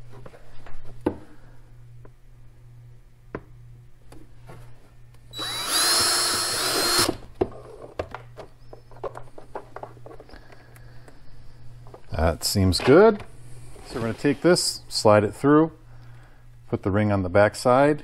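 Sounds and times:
drill with hole saw whining: 5.3s - 7.2s.

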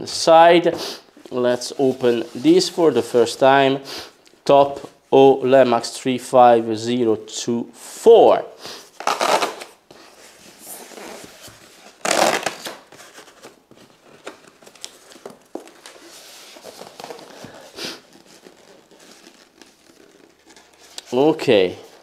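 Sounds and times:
adhesive tape ripping: 9.0s - 9.8s, 12.0s - 13.0s, 17.0s - 21.1s.

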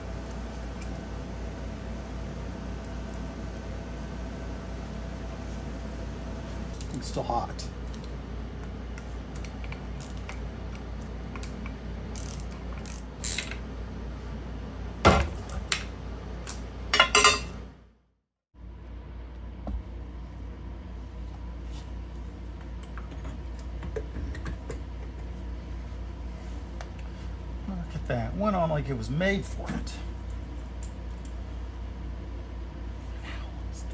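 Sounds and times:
tools clanking on steel bench: 16.9s - 17.5s.

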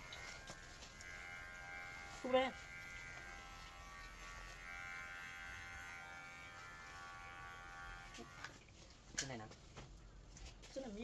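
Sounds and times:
electric hair clippers buzzing: 0.0s - 8.6s.

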